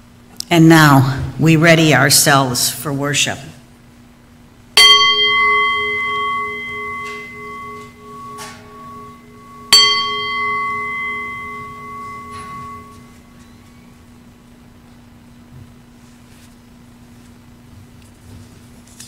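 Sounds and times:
singing bowl ringing: 0:04.8 - 0:14.0.

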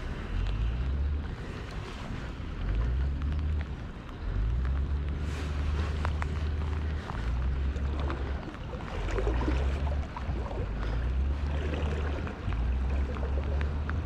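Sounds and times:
faint water sounds: 0:00.0 - 0:14.0
light ticks: 0:00.0 - 0:14.0
wind buffeting microphone: 0:00.0 - 0:14.0.

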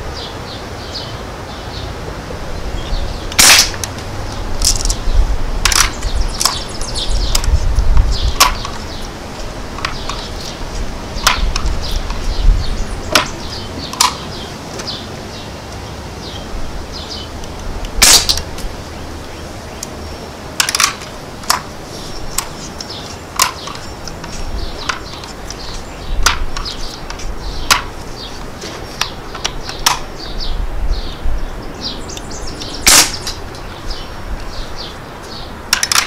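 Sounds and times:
wind rumbling on microphone: 0:00.0 - 0:35.8
birds chirping faintly: 0:00.0 - 0:36.0
air rifle shots: 0:03.3 - 0:03.9, 0:18.0 - 0:18.4, 0:32.8 - 0:33.4.

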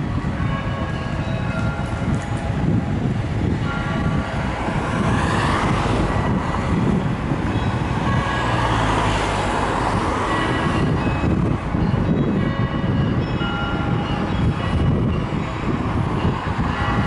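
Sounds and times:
church bells ringing: 0:00.0 - 0:02.7, 0:03.6 - 0:04.8, 0:06.0 - 0:17.0.

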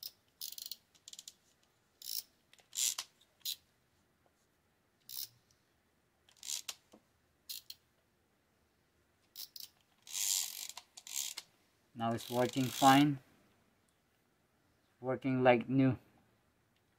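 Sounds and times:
small reel parts clicking: 0:00.0 - 0:03.6, 0:05.0 - 0:05.6, 0:06.3 - 0:06.9, 0:07.5 - 0:07.8, 0:09.3 - 0:11.5, 0:12.1 - 0:13.1.

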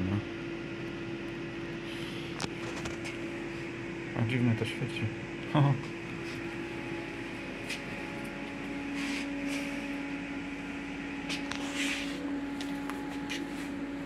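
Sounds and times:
machine hum: 0:00.0 - 0:14.0
faint brushing sounds: 0:08.9 - 0:09.9, 0:11.3 - 0:13.8.

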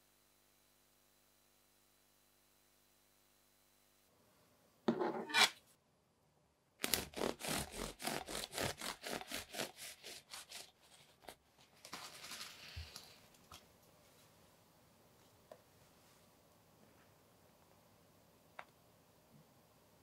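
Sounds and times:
knife sawing through bread crust: 0:06.8 - 0:11.2.

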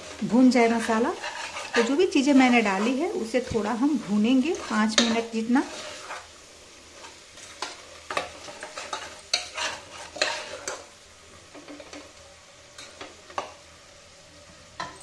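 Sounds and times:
metal ladle scraping a pot: 0:00.0 - 0:03.6, 0:04.5 - 0:06.3, 0:07.0 - 0:10.9
faint sizzle: 0:00.0 - 0:15.0.

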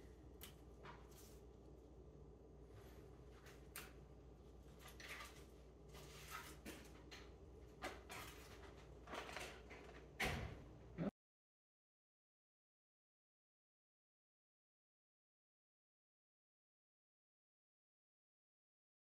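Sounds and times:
low steady hum: 0:00.0 - 0:09.1
kitchen items clicking and rustling: 0:04.8 - 0:10.2.

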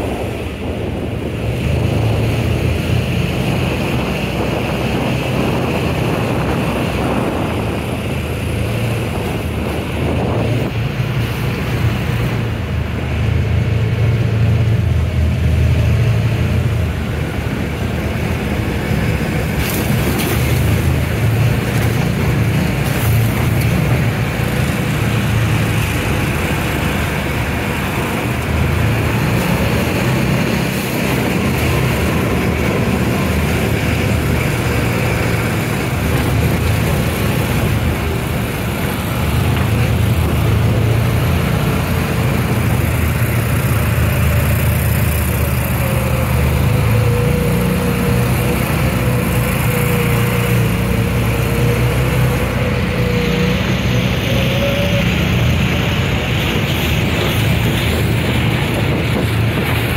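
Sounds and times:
off-road vehicle engine running: 0:00.0 - 0:59.9
road and wind noise: 0:00.0 - 0:59.9.

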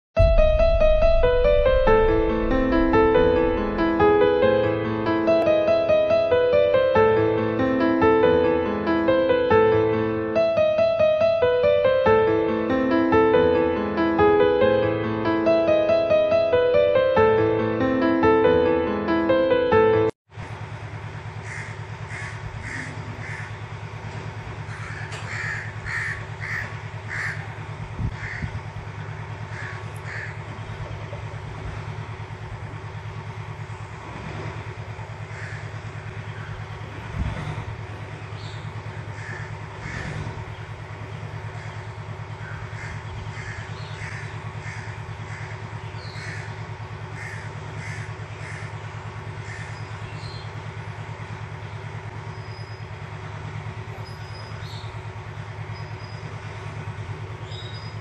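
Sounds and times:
steady low hum: 0:00.2 - 0:58.0
birds calling: 0:21.4 - 0:23.7, 0:24.5 - 0:31.4, 0:35.0 - 0:37.1, 0:38.0 - 0:53.1, 0:54.0 - 0:58.0.

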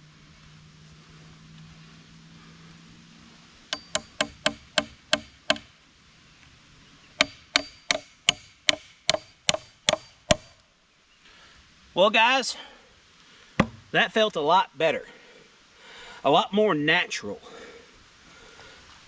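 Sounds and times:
hatchet hammering nail into wood: 0:03.7 - 0:05.7, 0:07.2 - 0:10.5, 0:13.6 - 0:13.8.

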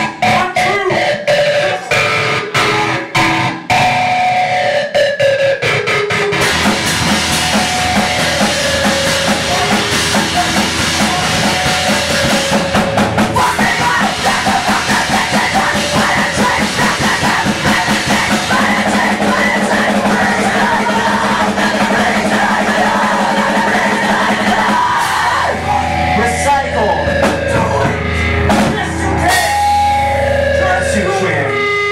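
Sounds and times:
pop-punk band playing live: 0:00.0 - 0:31.9.

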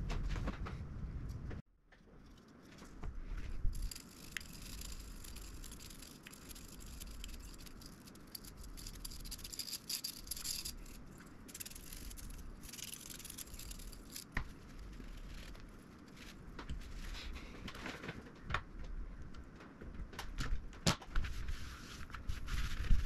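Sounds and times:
hands scratching and rubbing: 0:02.2 - 0:17.6, 0:21.2 - 0:23.0.

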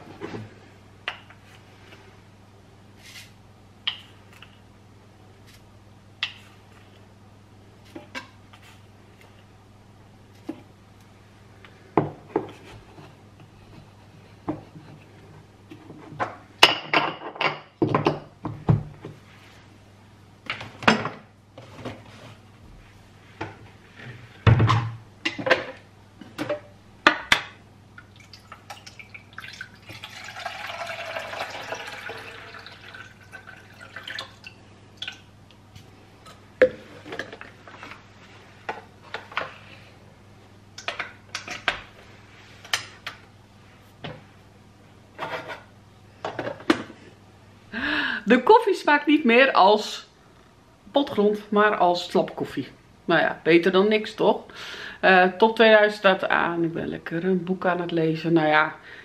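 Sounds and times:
water pouring into coffee maker: 0:28.1 - 0:35.2.

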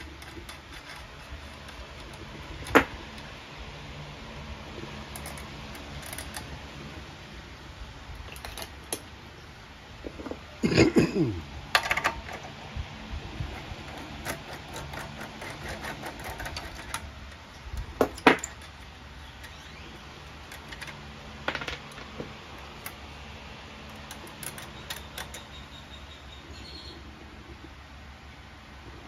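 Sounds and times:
small metal hardware clicking: 0:00.0 - 0:03.3, 0:05.1 - 0:06.6, 0:08.3 - 0:09.1, 0:13.5 - 0:23.0, 0:23.9 - 0:25.8.

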